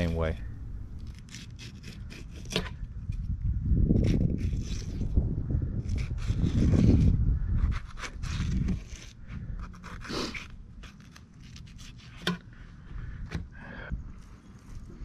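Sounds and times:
low rumble: 0.0s - 1.4s
knife scraping fish skin: 1.1s - 2.8s, 4.0s - 5.1s, 5.8s - 12.3s.

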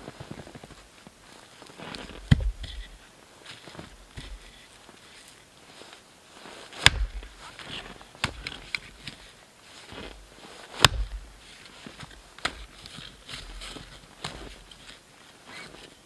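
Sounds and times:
hatchet splitting wood: 2.1s - 3.0s, 6.8s - 7.4s, 8.2s - 8.8s, 10.8s - 11.3s.

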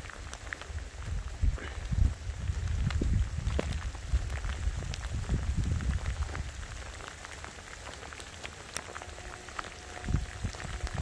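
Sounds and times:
rain falling on grass: 0.0s - 11.0s
low rumble: 8.9s - 11.0s.

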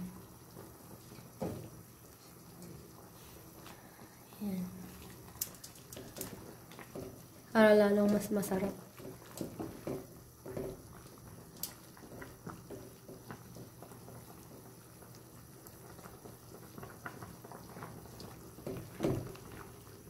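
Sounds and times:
soup simmering in a pot: 0.0s - 20.0s
wooden spoon stirring: 4.8s - 14.8s.

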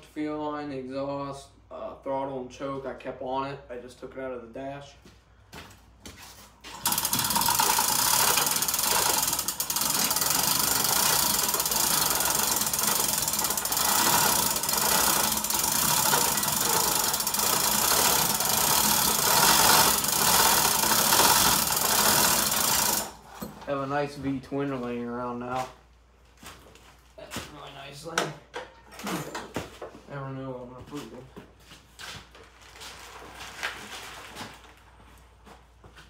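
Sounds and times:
chain rattling through hoist: 6.8s - 23.6s.

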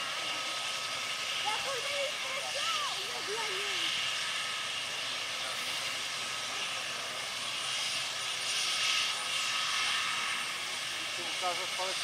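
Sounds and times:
helicopter engine whine: 0.0s - 12.0s
rotor and exhaust rush: 0.0s - 12.0s.

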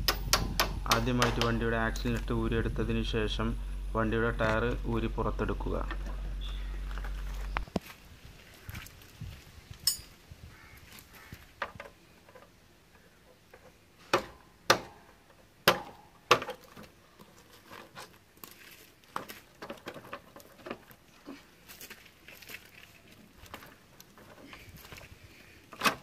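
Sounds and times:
sharp clicks and knocks: 0.0s - 2.3s.

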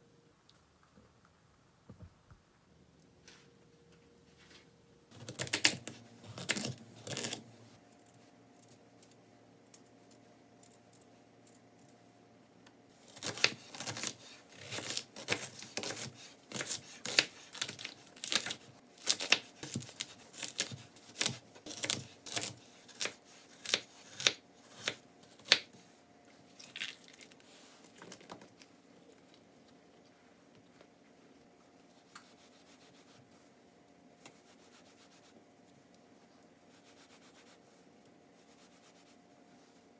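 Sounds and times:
knife cutting onion on wooden board: 13.1s - 25.7s.

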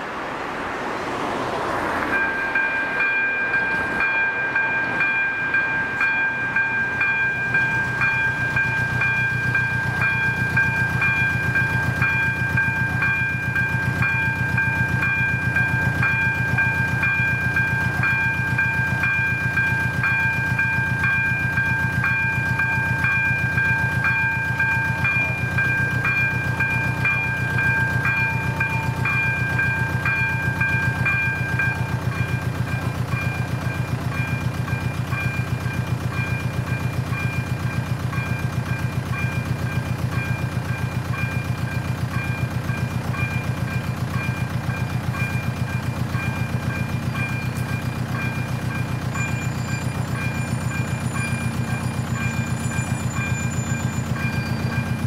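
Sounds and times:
car passing: 0.0s - 5.2s
level-crossing warning bell: 0.0s - 55.0s.

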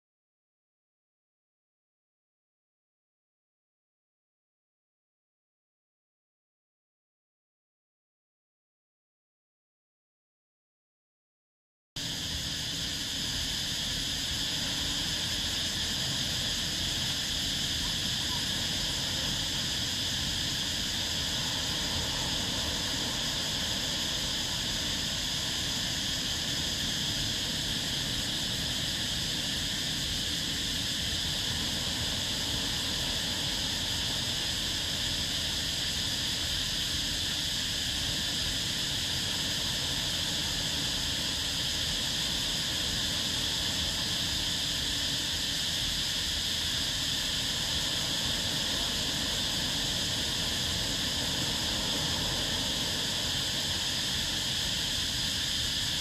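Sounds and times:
high-pitched insect chorus: 12.0s - 56.0s
small waves rumbling: 17.7s - 37.0s, 37.9s - 44.6s, 47.2s - 55.2s.

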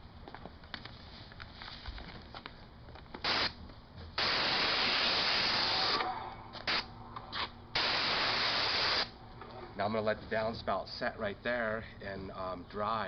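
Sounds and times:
paint spray gun hissing: 3.2s - 3.6s, 4.2s - 6.0s, 7.8s - 9.1s.

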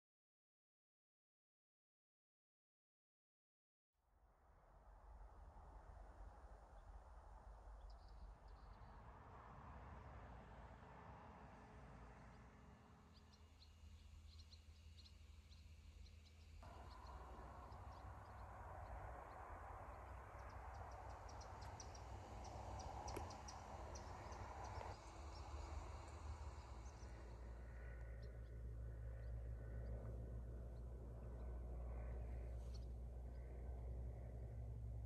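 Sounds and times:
low steady rumble: 4.4s - 35.0s
small birds chirping: 7.6s - 9.1s, 12.0s - 35.0s.

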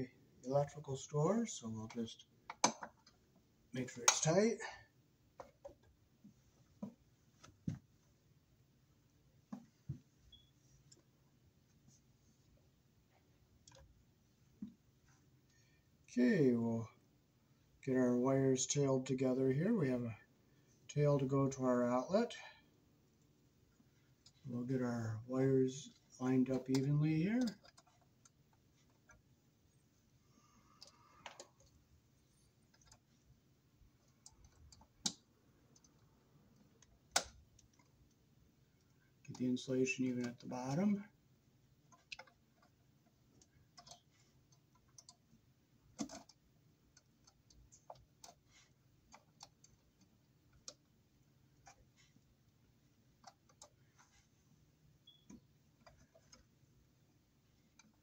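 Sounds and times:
faint clicks and taps: 1.8s - 8.1s, 9.4s - 12.5s, 13.1s - 15.7s, 25.8s - 29.8s, 30.6s - 41.1s, 41.8s - 58.0s.

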